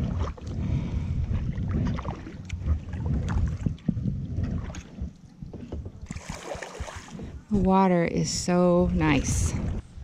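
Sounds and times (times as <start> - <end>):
water splashes and paddle knocks: 0.0 - 8.0
wind rumbling on microphone: 0.0 - 10.0.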